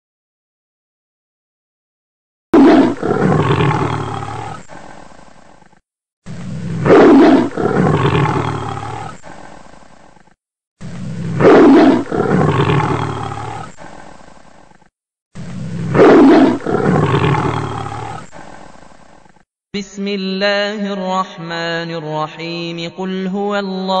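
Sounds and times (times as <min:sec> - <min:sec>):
loud roaring sound effect: 0:02.6 - 0:05.1, 0:06.3 - 0:09.7, 0:10.8 - 0:14.0, 0:15.4 - 0:18.6.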